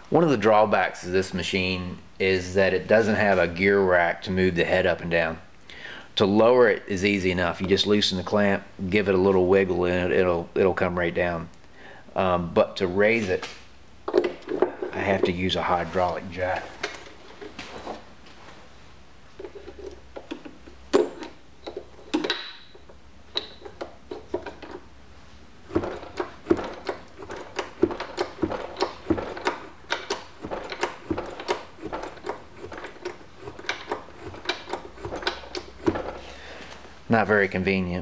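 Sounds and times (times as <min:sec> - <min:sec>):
hydraulic jack pumping clacks: 0:25.7 - 0:36.4.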